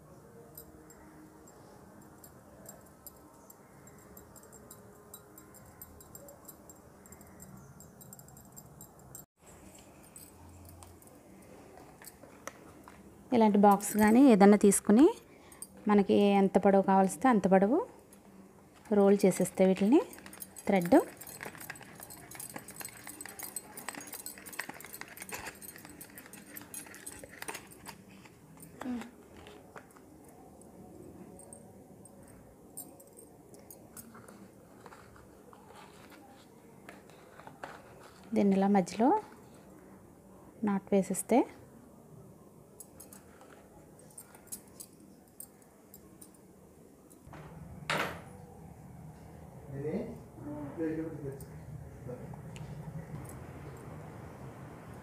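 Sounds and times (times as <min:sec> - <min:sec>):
hands handling thread and box: 0:19.7 - 0:30.2, 0:34.0 - 0:39.6.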